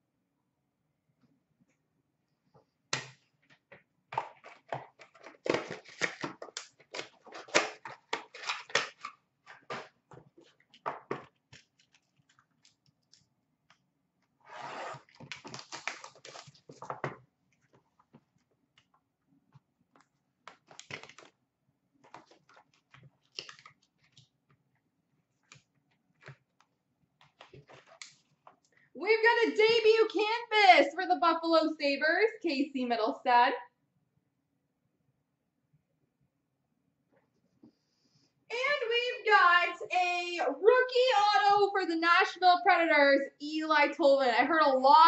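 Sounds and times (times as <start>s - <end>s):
plastic wrap and cardboard rustling: 4.5s - 12.9s, 14.9s - 18.4s, 22.0s - 24.4s, 27.3s - 28.6s.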